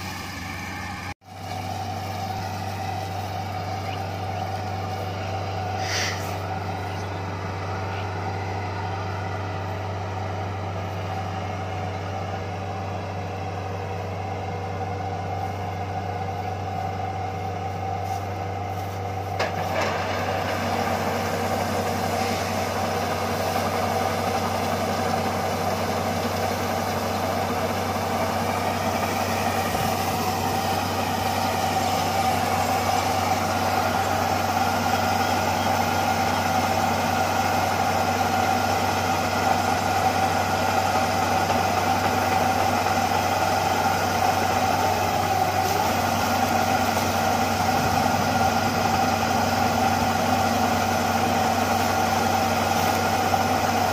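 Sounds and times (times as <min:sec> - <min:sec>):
diesel engine running: 0:00.0 - 0:53.9
auger pouring grain: 0:18.0 - 0:53.9.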